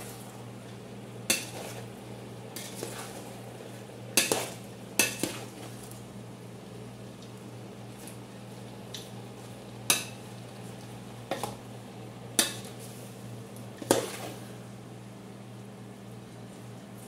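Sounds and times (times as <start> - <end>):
steady low hum: 0.0 - 17.0
spoon stirring vegetables in pot: 2.5 - 3.4, 4.2 - 5.7.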